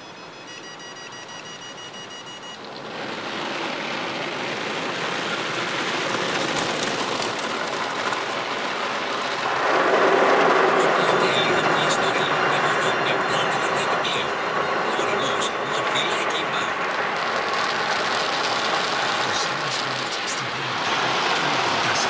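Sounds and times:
car wash brushes and spray: 2.5 - 12.8, 13.6 - 22.0.

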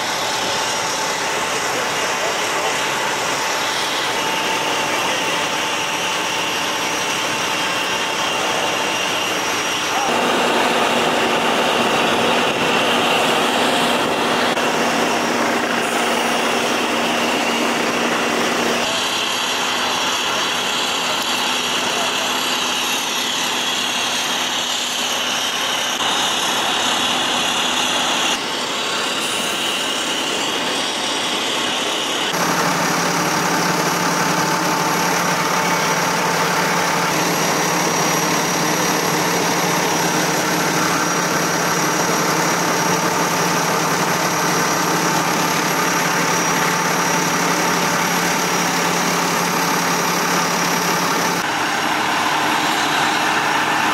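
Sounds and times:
street noise: 0.0 - 53.9
vehicle engine idling: 32.3 - 53.9.

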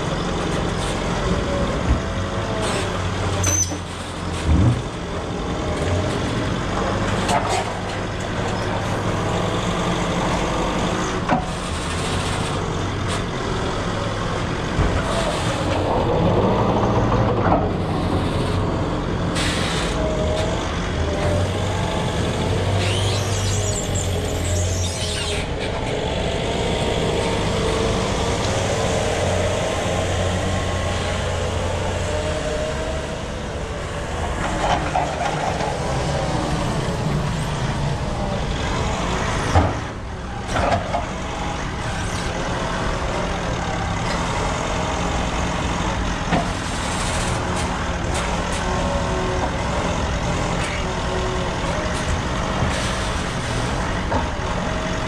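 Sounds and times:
forklift engine revving: 0.0 - 55.0.

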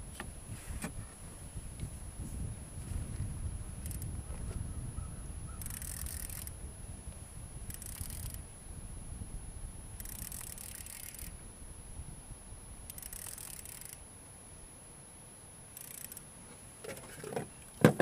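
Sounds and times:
wind rumble on microphone: 0.0 - 13.3
fishing reel hissing: 3.8 - 4.2, 5.5 - 6.7, 7.6 - 8.6, 9.9 - 11.4, 12.8 - 14.0, 15.7 - 16.3.

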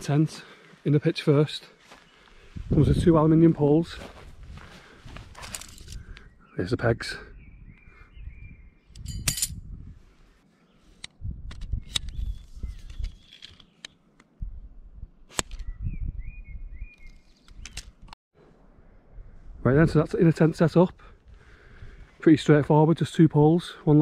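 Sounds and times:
tent pegs and poles clicking: 5.3 - 6.2, 10.9 - 14.4, 15.3 - 15.7, 16.9 - 18.2
bird chirping: 6.0 - 9.0, 11.7 - 14.1, 15.5 - 18.0.

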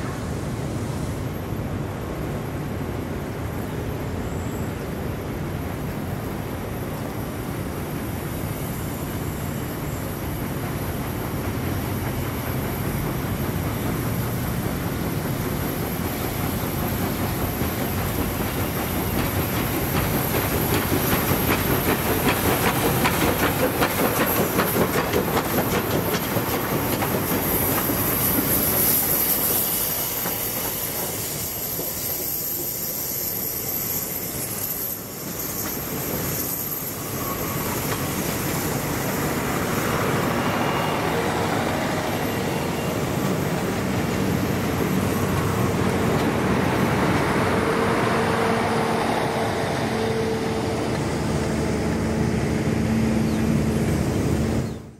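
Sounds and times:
steam locomotive passing: 0.0 - 54.9
train wheels clattering: 10.2 - 51.2.

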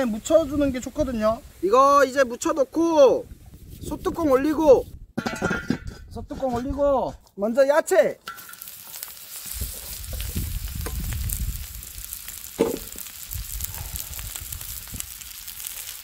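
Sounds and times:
vegetables sizzling on hot metal: 8.3 - 16.0.

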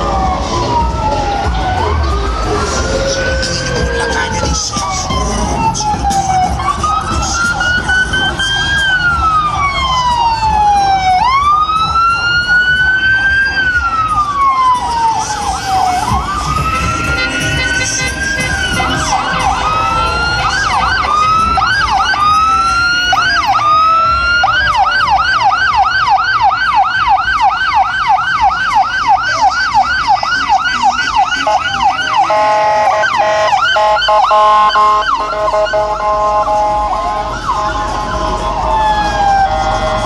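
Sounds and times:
vehicle sirens wailing and yelping: 0.0 - 40.0
car horns honking: 16.6 - 21.6, 30.8 - 38.7.

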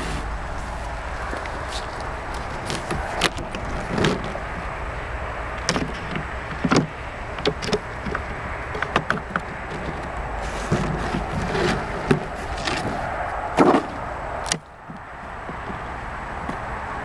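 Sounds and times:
wooden frames knocking: 5.6 - 13.0, 13.6 - 14.0.

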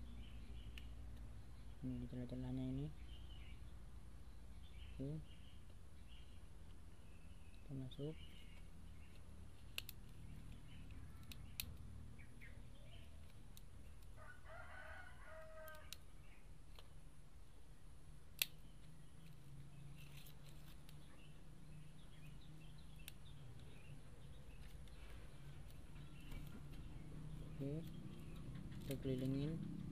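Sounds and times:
low steady hum: 0.0 - 29.9
rooster crowing: 14.2 - 16.0.

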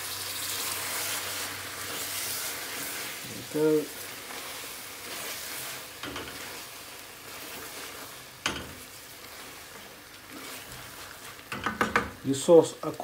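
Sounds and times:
chicken and leaves sizzling in pan: 0.0 - 13.0
wooden spoon stirring: 0.8 - 12.3
spoon knocking against pan: 8.4 - 8.8, 11.5 - 12.2.

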